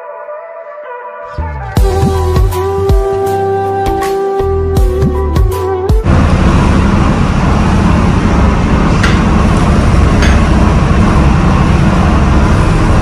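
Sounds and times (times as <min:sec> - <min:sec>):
boat engine low rumble: 0:04.5 - 0:13.0.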